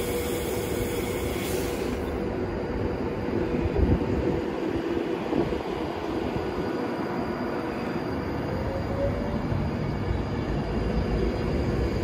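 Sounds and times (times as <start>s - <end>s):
electric train humming: 0.0s - 12.0s
wheels rumbling on rail: 0.0s - 12.0s.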